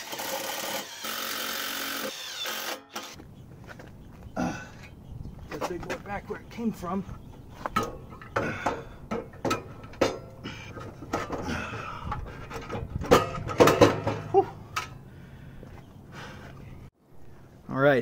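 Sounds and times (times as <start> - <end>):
metal clunks and scrapes: 7.6 - 15.0.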